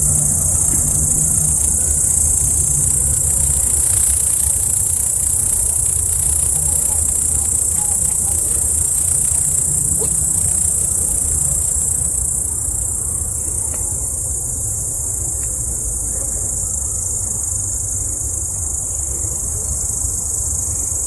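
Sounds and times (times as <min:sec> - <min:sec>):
crickets chirring: 0:00.0 - 0:21.0.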